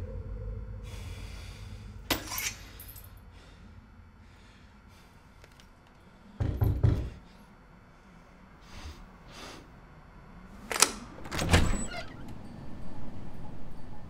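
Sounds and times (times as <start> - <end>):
knocking on a door: 6.4 - 7.2.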